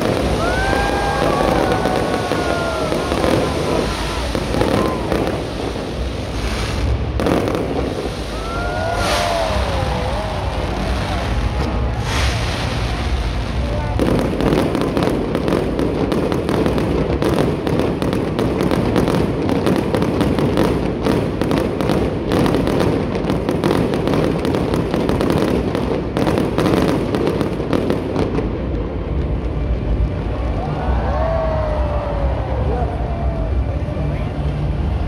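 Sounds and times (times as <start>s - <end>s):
low rumble: 0.0s - 17.3s, 28.2s - 35.0s
fireworks crackling and banging: 0.0s - 35.0s.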